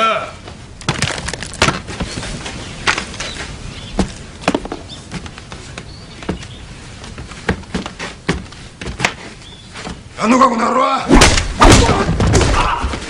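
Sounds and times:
footsteps on wooden floor: 1.6 - 10.1.

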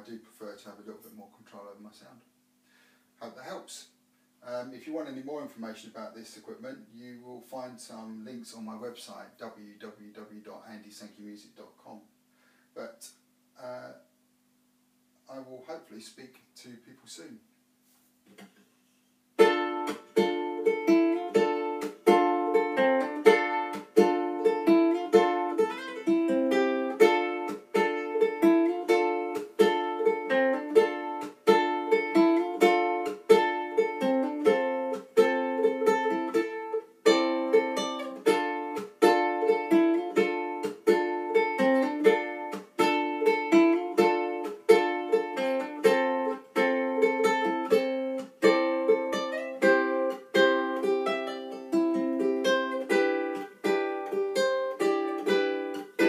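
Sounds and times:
amplified ukulele playing: 19.4 - 56.0.

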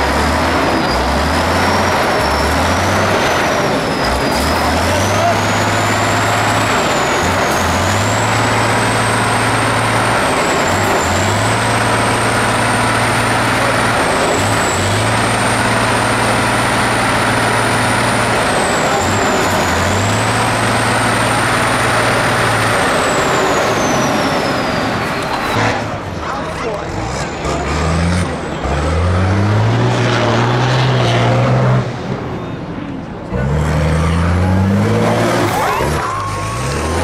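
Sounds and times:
diesel truck engine working hard: 0.0 - 37.0.

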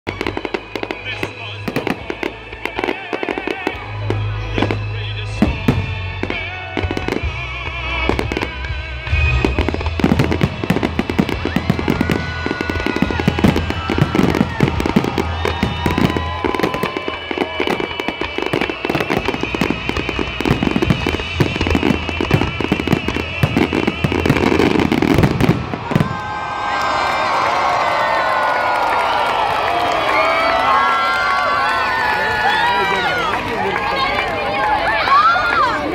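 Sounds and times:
music: 0.1 - 26.2
fireworks bangs: 0.1 - 31.5.

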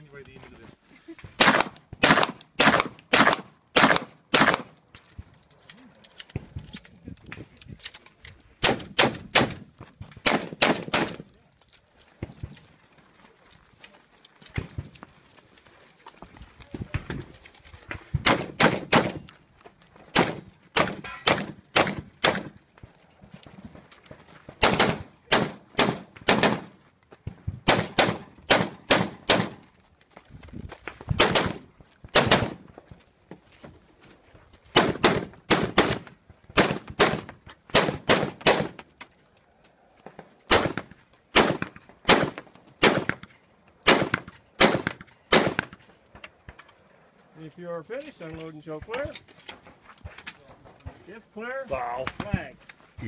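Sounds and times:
rapid rifle gunshots: 1.4 - 4.7, 10.2 - 11.2, 18.2 - 19.2, 24.6 - 26.7, 27.6 - 29.6, 31.2 - 32.6, 36.6 - 38.8, 40.5 - 43.2, 43.9 - 45.7.

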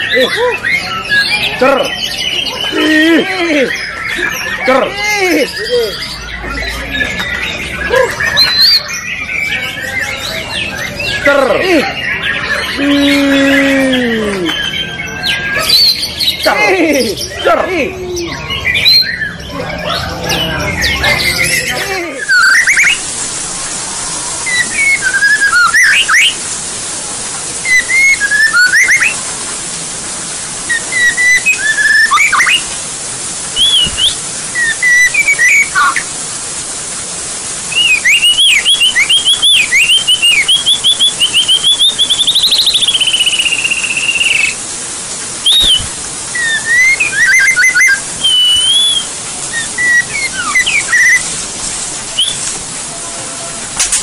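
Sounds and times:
bird singing whistled phrases: 5.4 - 11.3, 17.1 - 23.1, 24.4 - 26.4, 27.6 - 29.2, 30.7 - 32.7, 33.6 - 36.1, 37.7 - 44.6, 45.4 - 51.3, 52.1 - 52.5
bird trilling rapidly: 14.8 - 23.2, 24.4 - 26.4, 27.6 - 29.2, 30.7 - 32.7, 33.6 - 36.1, 37.7 - 44.6, 45.4 - 51.3
steady hiss: 20.1 - 54.0.

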